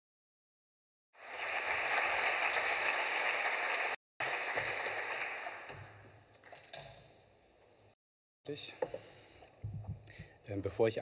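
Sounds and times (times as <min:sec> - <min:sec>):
audience applauding: 0:01.2 - 0:06.0.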